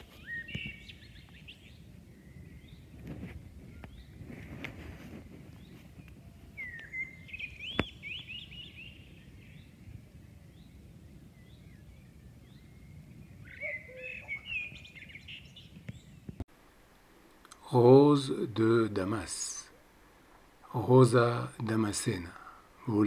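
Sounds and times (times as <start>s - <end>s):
songbird chirping and warbling: 0.0s - 16.4s, 17.7s - 23.0s
faint low outdoor rumble: 0.0s - 23.0s.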